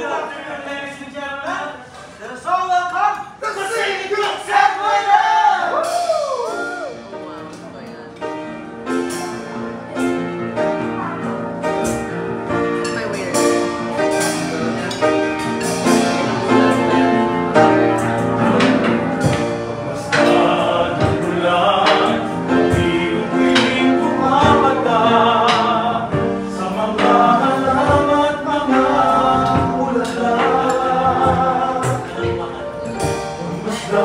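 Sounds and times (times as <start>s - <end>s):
musical accompaniment: 4.5s - 34.0s
people singing: 14.4s - 34.0s.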